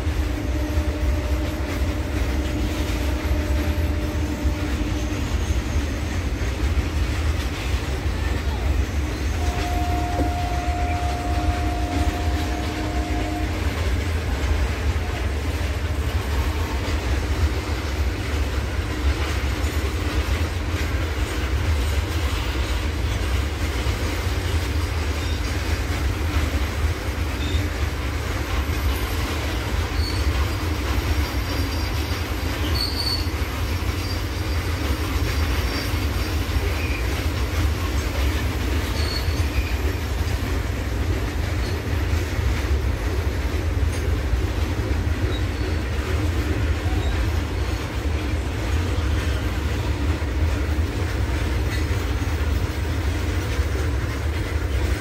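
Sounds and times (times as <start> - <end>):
train wheels rumbling on rails: 0.0 - 55.0
high wheel squeals: 0.4 - 6.5, 28.5 - 37.3, 37.9 - 40.3, 45.2 - 46.0.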